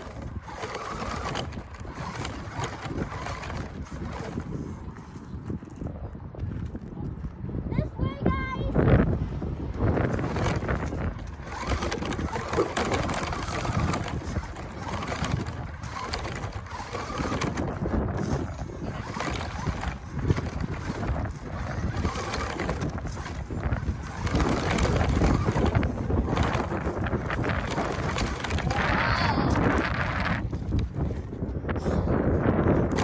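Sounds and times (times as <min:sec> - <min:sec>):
toy truck motor running: 0:00.0 - 0:05.0, 0:09.9 - 0:30.9
wheels crunching over gravel: 0:00.0 - 0:07.3, 0:09.8 - 0:33.0
wind buffeting microphone: 0:00.0 - 0:33.0.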